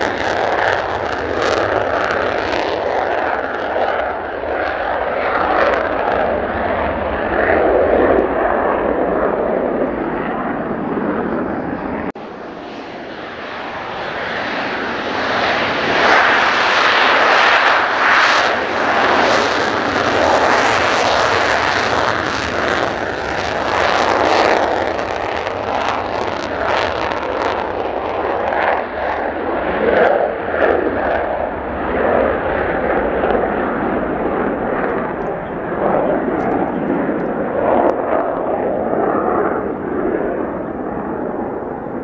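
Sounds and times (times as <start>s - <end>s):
jet engine afterburner roar: 0.0s - 42.0s.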